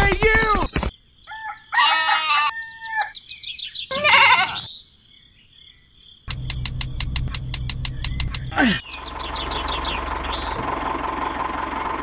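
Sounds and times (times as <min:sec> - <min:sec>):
goat bleating: 0:03.9 - 0:04.7.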